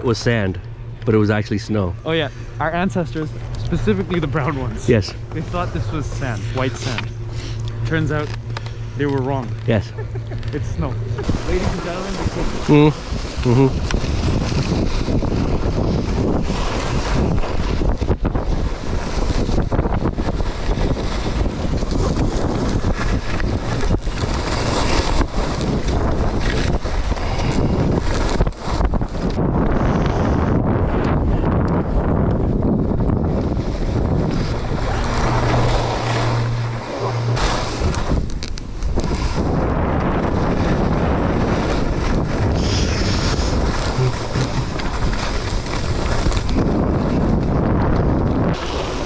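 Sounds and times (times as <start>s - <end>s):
wind buffeting microphone: 0.0s - 49.0s
skis sliding over snow: 2.7s - 8.2s, 9.0s - 18.0s, 34.3s - 49.0s
skis rasping on snow: 3.7s - 7.6s, 20.3s - 28.9s, 34.0s - 47.8s, 48.4s - 49.0s.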